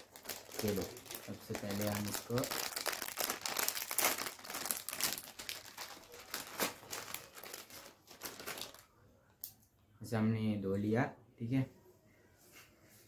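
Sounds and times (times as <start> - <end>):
plastic chip packet crinkling: 0.0 - 8.9.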